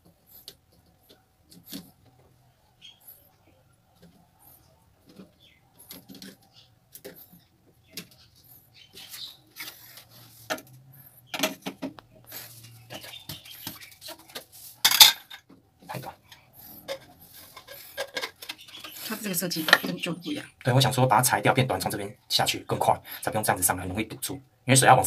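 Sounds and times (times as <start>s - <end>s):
plastic pipe parts clicking and knocking: 9.6s - 12.2s, 12.9s - 20.0s.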